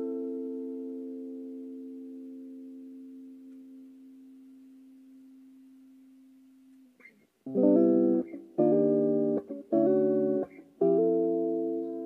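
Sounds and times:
electric guitar chord ringing: 0:00.0 - 0:04.6, 0:07.5 - 0:12.0
strummed guitar chords: 0:07.5 - 0:12.0.

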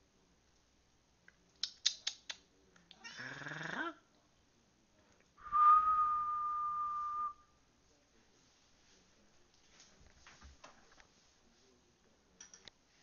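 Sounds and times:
cat meowing: 0:03.0 - 0:03.4
person whistling: 0:05.4 - 0:07.4.

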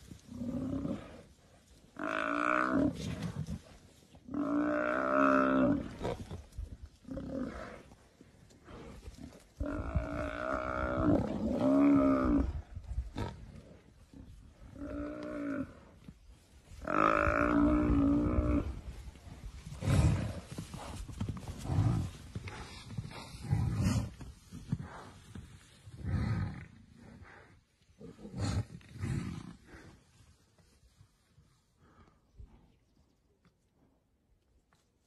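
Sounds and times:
buffalo bellowing in distress: 0:16.8 - 0:18.8.

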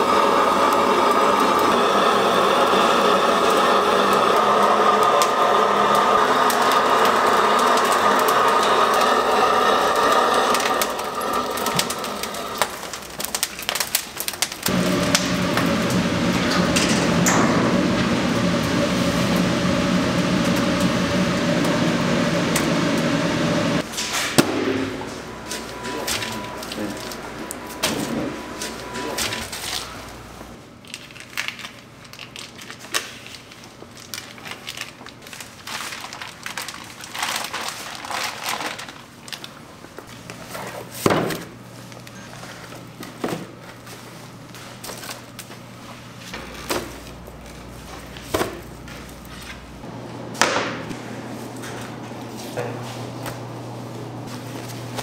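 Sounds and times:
mechanical hum with hiss: 0:00.0 - 0:55.0
sharp bang: 0:24.1 - 0:26.6.

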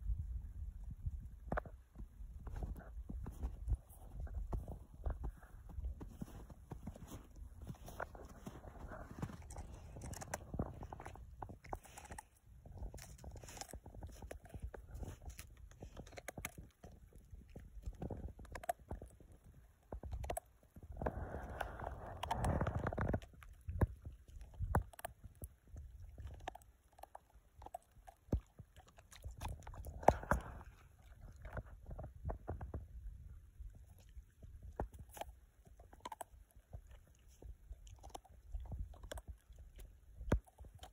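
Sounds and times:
wind rumble on microphone: 0:00.0 - 0:16.6, 0:20.0 - 0:26.6, 0:29.2 - 0:35.0
snow crunching: 0:02.5 - 0:11.2.

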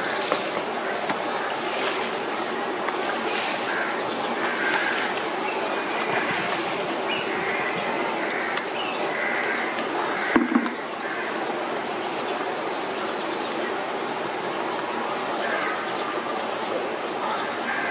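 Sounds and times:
rushing background noise: 0:00.0 - 0:17.9.

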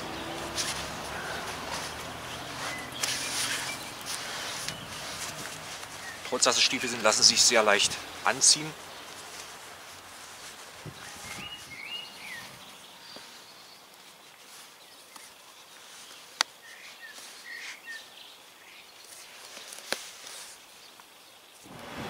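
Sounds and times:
birds chirping: 0:00.0 - 0:21.7
boot laces pulled and tied: 0:00.2 - 0:07.8, 0:09.0 - 0:12.5, 0:18.9 - 0:21.7.

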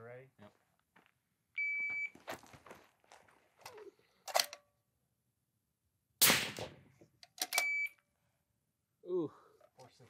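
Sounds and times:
electronic timer beep: 0:01.6 - 0:02.1, 0:07.6 - 0:08.0.

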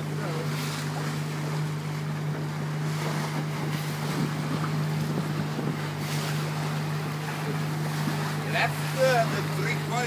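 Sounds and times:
motorboat engine droning: 0:00.0 - 0:10.0
water washing past: 0:00.0 - 0:10.0
wind on microphone: 0:02.3 - 0:08.5.

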